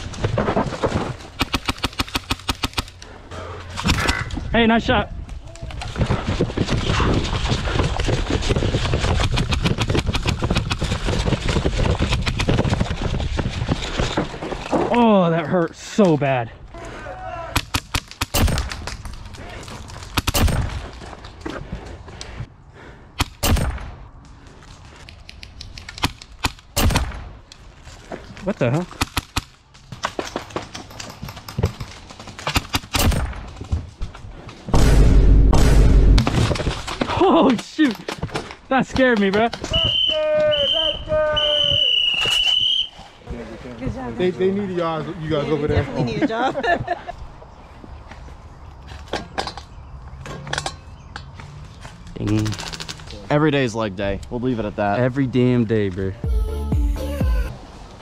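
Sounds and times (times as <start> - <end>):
sharp clicks and rattles: 52.2 - 53.2.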